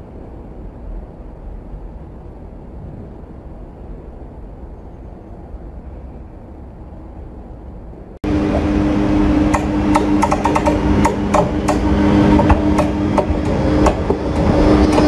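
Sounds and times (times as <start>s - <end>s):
electric locomotive hum: 0.0s - 15.0s
wheel rumble: 8.2s - 15.0s
wheels clicking over rail joints: 9.5s - 15.0s.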